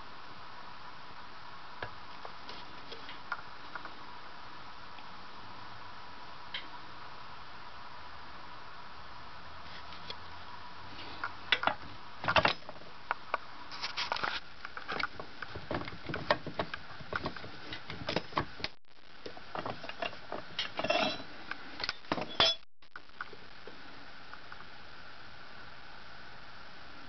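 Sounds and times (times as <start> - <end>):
metal tools clinking on workbench: 20.7 - 21.3, 22.2 - 22.6.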